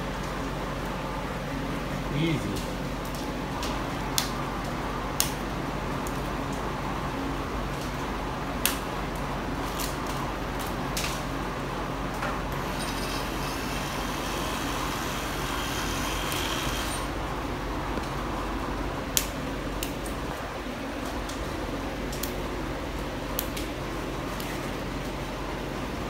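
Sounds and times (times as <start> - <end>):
oscillating multi-tool running: 12.6 - 17.1
harsh scraping hiss: 12.6 - 17.2.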